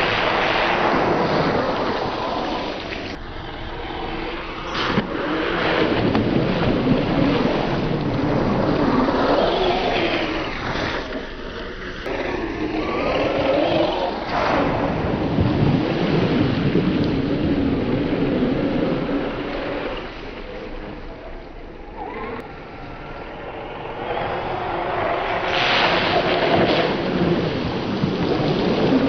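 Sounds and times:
tyres splashing through mud puddle: 0:24.0 - 0:29.0.

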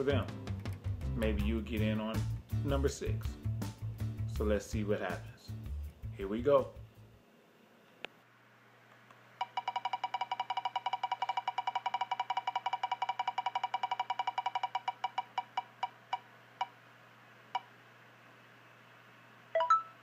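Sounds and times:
prize wheel ticking: 0:09.4 - 0:16.2.

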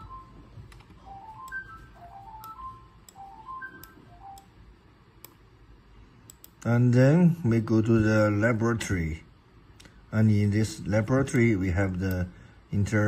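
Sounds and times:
light melody of high notes: 0:00.0 - 0:04.4.

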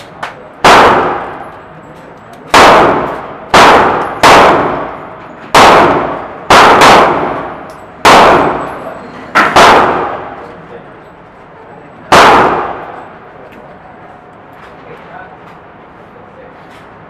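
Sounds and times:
rifle shots echoing indoors: 0:00.6 - 0:01.6, 0:02.5 - 0:10.5, 0:12.1 - 0:13.2.

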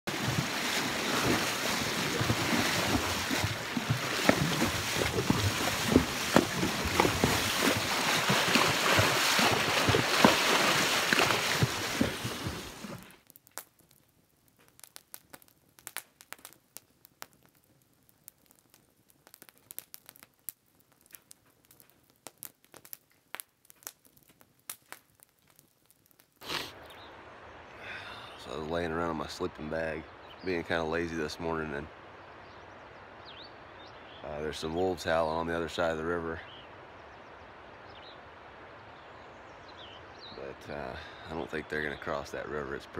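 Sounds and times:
water splashing and sloshing: 0:00.0 - 0:13.2
campfire crackling: 0:00.0 - 0:42.9.

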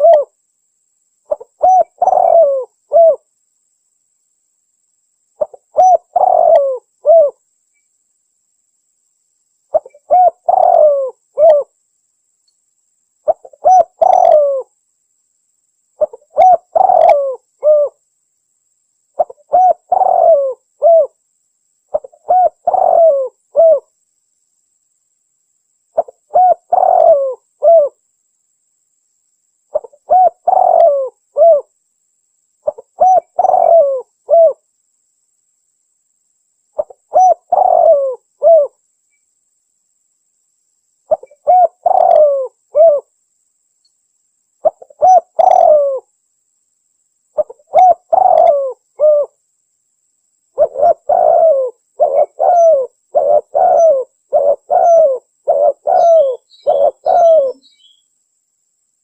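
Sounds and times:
dove cooing: 0:00.0 - 0:00.4, 0:01.3 - 0:03.3, 0:05.4 - 0:07.4, 0:09.7 - 0:11.7, 0:13.3 - 0:14.7, 0:16.0 - 0:18.0, 0:19.2 - 0:21.2, 0:21.9 - 0:23.9, 0:26.0 - 0:28.0, 0:29.7 - 0:31.7, 0:32.6 - 0:34.6, 0:36.8 - 0:38.8, 0:41.1 - 0:43.1, 0:44.6 - 0:46.1, 0:47.4 - 0:49.4, 0:50.6 - 0:58.0.

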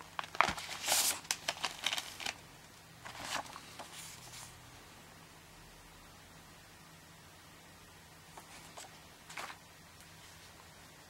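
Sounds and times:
paper rustling: 0:00.0 - 0:02.4, 0:03.0 - 0:04.5, 0:08.4 - 0:10.4.

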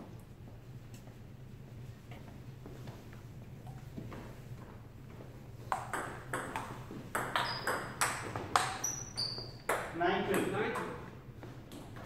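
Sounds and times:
table tennis ball hits: 0:05.6 - 0:11.1.

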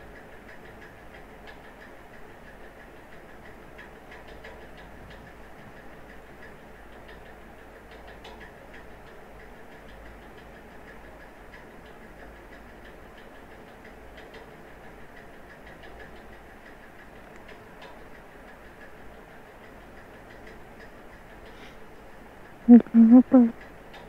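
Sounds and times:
background hiss: 0:20.7 - 0:23.9.

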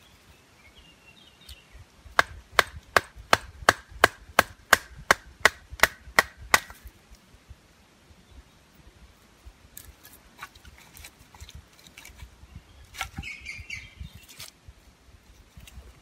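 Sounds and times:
knife scraping wood: 0:09.8 - 0:12.3.

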